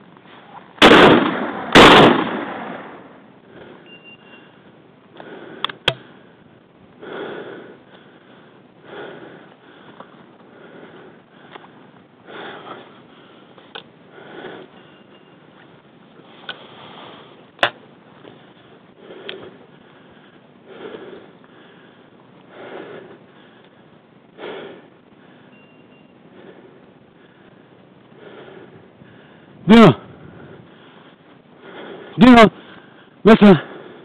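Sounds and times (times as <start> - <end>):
shotgun shots: 0.8 - 3.0
heavy breathing: 3.0 - 17.6, 18.2 - 34.0.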